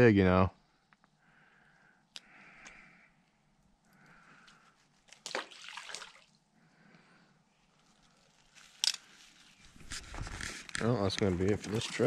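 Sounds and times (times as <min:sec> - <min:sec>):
fish splashing into water: 0:05.1 - 0:06.4.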